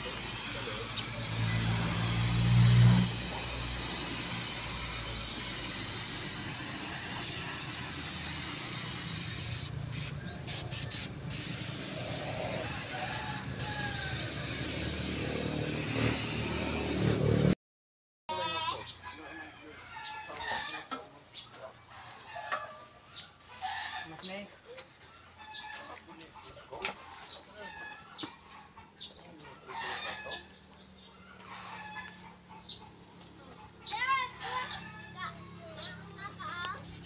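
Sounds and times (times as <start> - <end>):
paint spray gun hissing: 0.0 - 17.2.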